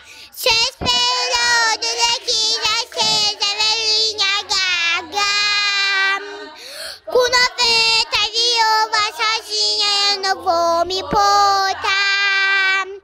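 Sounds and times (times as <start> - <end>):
girl breathing in: 0.0 - 0.4, 6.6 - 7.1
girl singing long notes: 0.4 - 13.0.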